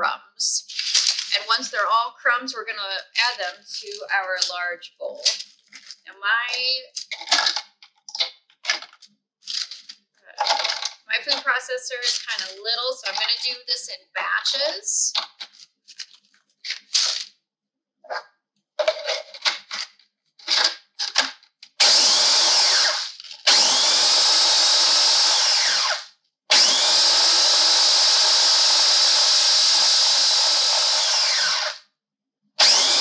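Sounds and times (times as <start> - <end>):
food processor pulsing: 21.8 - 31.8, 32.6 - 33.0.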